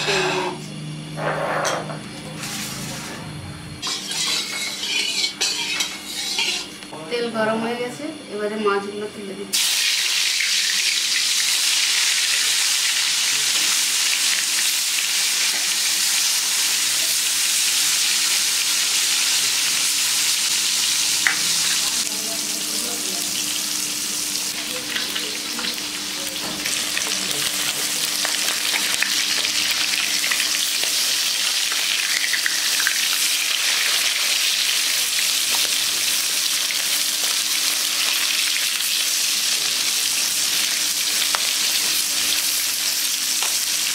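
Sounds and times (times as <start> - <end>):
fish frying in hot oil: 9.5 - 43.9.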